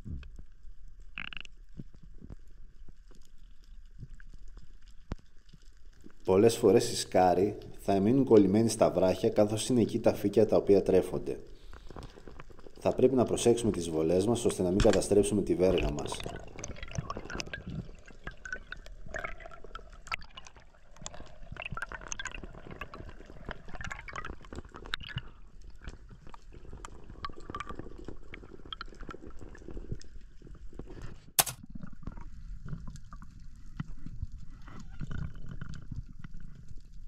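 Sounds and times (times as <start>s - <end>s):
underwater gurgling and crackling: 0.0s - 37.0s.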